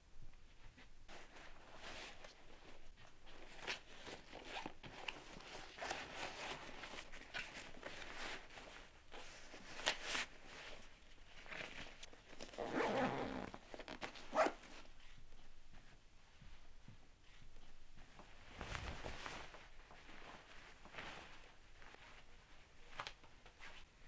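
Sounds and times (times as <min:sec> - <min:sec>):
fabric rustling in backpack: 0:01.1 - 0:15.0, 0:18.1 - 0:24.0
backpack zipper: 0:12.5 - 0:14.6.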